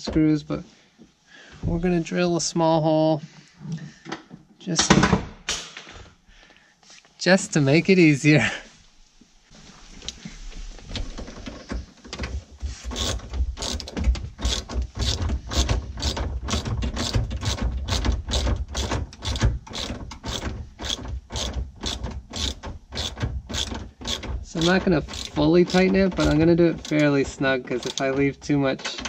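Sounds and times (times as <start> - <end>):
ratchet wrench clicking: 12.9 - 27.2, 27.8 - 28.1.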